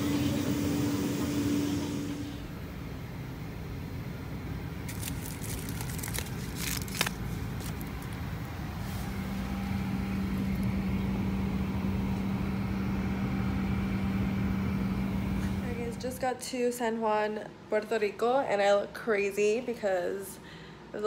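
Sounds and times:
airport terminal rumble: 0.0s - 16.3s
steady low hum: 0.0s - 21.0s.

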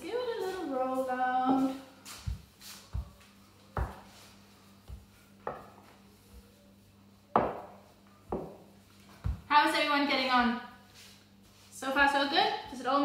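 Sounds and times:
rolling pin knocking on worktop: 7.4s - 8.6s.

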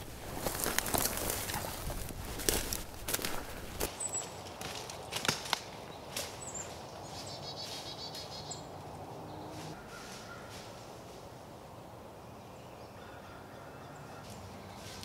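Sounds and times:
twigs snapping: 0.0s - 6.4s
footsteps crunching dry leaves: 0.0s - 8.5s, 9.5s - 11.3s, 14.3s - 15.0s
songbird chirps: 3.9s - 10.8s, 11.4s - 15.0s.

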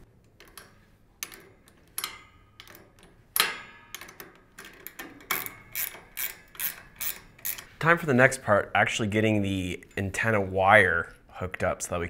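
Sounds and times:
wrench clicking on metal bolts: 0.4s - 7.8s.

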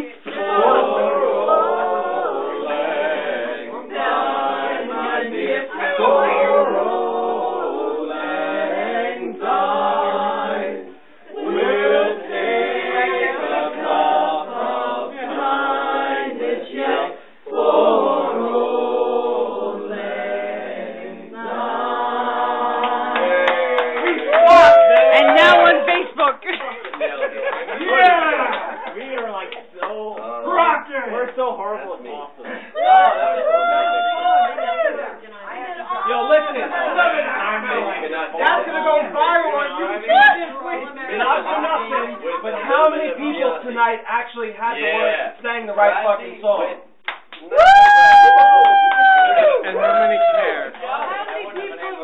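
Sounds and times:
unaccompanied group singing: 0.0s - 26.0s.

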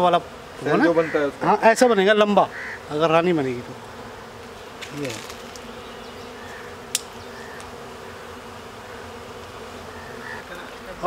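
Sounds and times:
bees buzzing: 0.0s - 11.0s
sharp click: 6.9s - 7.7s.

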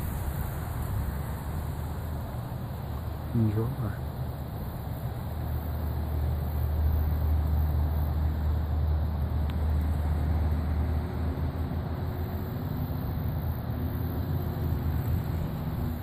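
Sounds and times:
wind buffeting microphone: 0.0s - 3.3s
faint steady hum: 0.0s - 16.0s.

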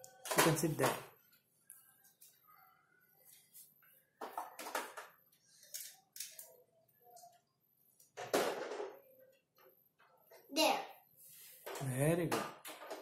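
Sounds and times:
plastic toys clicking and clattering: 0.0s - 1.1s, 4.2s - 9.0s, 11.6s - 13.0s.

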